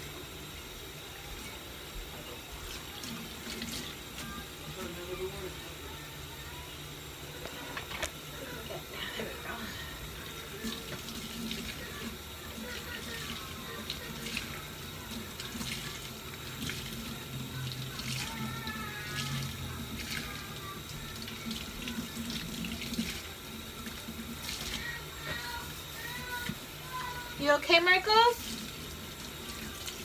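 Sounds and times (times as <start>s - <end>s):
faucet running into a steel sink: 8.5s - 30.0s.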